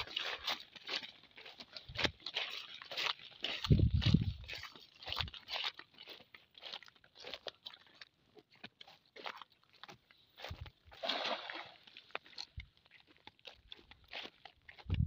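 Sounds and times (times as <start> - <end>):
net splashing on water: 0.0 - 0.9, 10.9 - 12.6
boots crunching on wet bank: 0.0 - 15.0.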